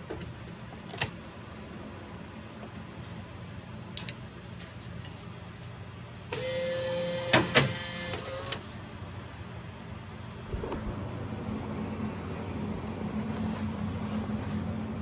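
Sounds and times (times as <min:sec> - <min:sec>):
bill validator motor whirring: 0:06.3 - 0:08.8.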